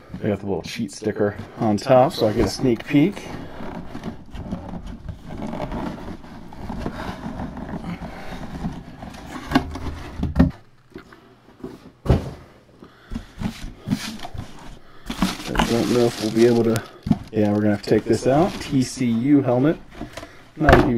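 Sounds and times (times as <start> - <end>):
cardboard box scraping and rustling: 2.0 - 10.2, 13.5 - 20.2
dull knocks of box set down: 12.0 - 12.5.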